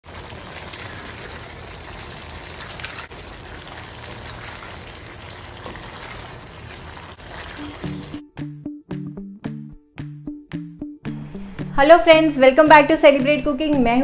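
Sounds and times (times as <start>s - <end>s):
gravy bubbling in a pan: 0.0s - 8.2s.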